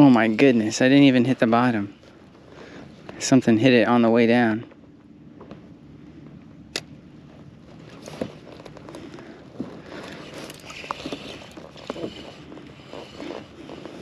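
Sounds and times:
fishing reel being cranked: 10.1s - 13.9s.

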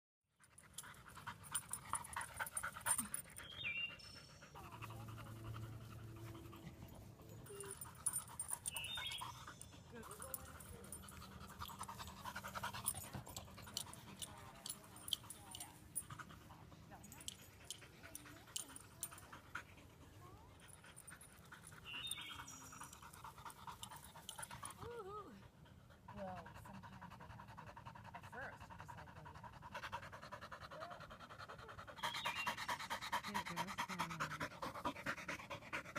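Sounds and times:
dog panting: 0.4s - 35.9s.

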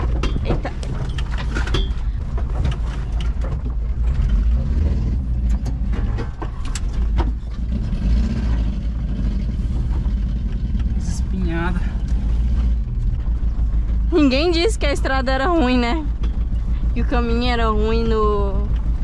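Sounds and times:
van knocks and rattles: 0.0s - 11.3s, 12.2s - 19.0s
van engine loud low drone: 0.0s - 19.0s.

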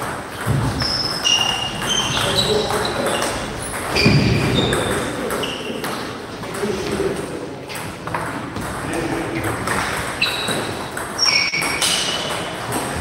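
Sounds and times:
table tennis balls clicking: 0.0s - 6.8s.

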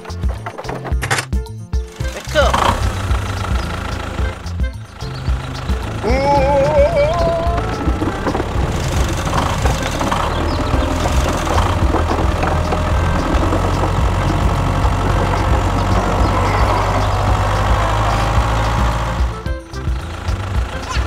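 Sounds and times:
toy tractor engine running: 1.9s - 21.0s.

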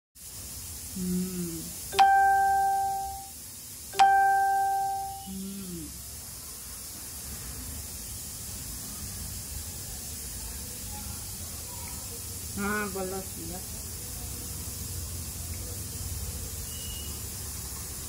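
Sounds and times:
steady hiss: 0.2s - 18.0s
bell-like chimes: 1.9s - 3.3s, 4.0s - 5.3s.

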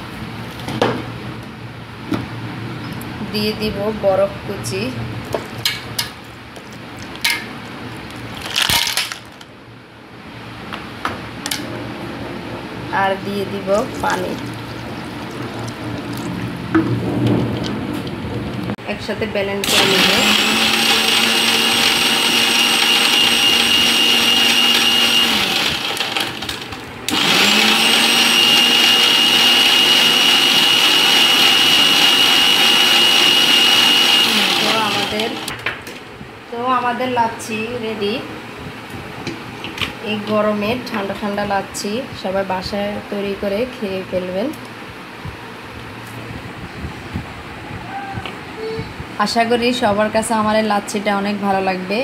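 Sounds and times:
ice cubes clinking into steel bowl: 8.4s - 9.4s
mixer grinder motor whine: 19.6s - 35.5s.

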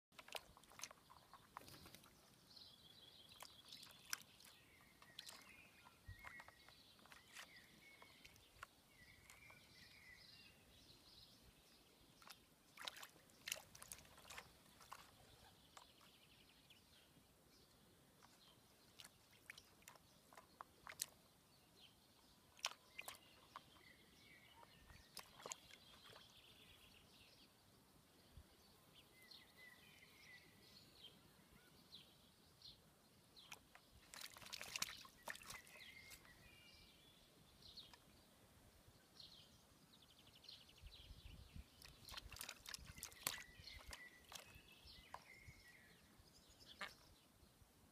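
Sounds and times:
bird splashing in water: 0.2s - 2.5s, 3.2s - 9.8s, 12.2s - 16.1s, 18.2s - 21.3s, 22.5s - 23.9s, 24.5s - 26.5s, 33.4s - 36.5s, 41.7s - 45.3s
faint bird calls: 41.8s - 47.2s.

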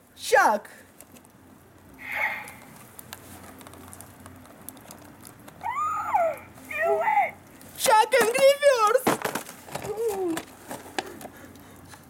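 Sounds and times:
man's high-pitched vocal squeals: 5.6s - 7.4s.

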